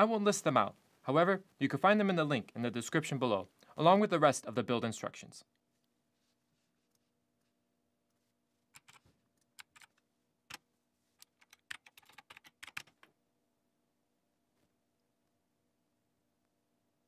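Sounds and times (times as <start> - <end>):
typing on computer keyboard: 8.7 - 10.6, 11.2 - 13.1.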